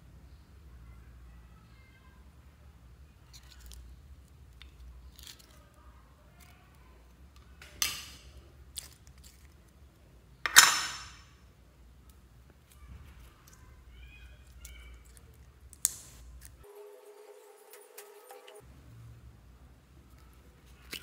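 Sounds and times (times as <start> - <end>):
sticky slime squishing: 8.2 - 10.2, 11.9 - 16.6, 20.0 - 21.0.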